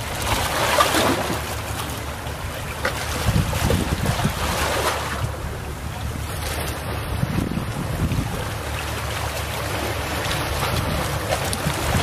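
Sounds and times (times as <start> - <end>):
low wind rumble on microphone: 0.0 - 12.0
small waves washing onto beach: 0.0 - 12.0.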